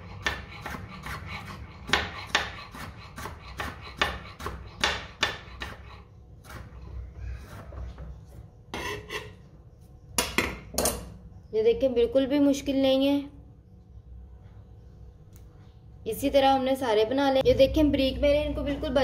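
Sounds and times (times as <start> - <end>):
knife chopping on work surface: 0.0 - 6.8.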